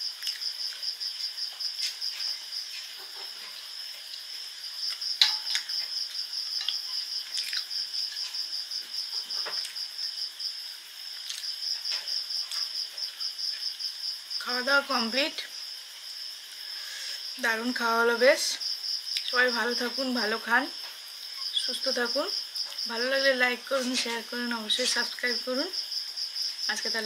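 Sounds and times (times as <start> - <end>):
insect chirping: 0.0 - 27.0
spoon clinking on steel plate: 5.2 - 5.7.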